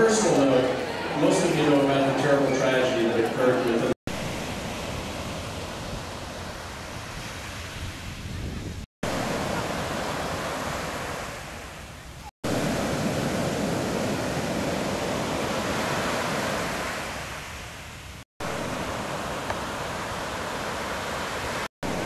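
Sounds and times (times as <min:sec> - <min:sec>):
waves breaking: 0:00.0 - 0:22.0.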